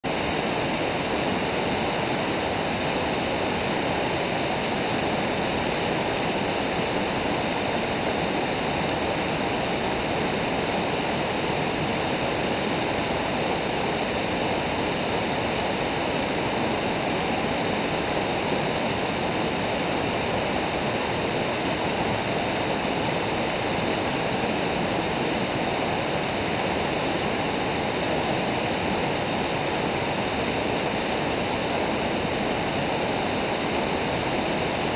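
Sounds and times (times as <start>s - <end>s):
river water rushing over rocks: 0.1s - 34.9s.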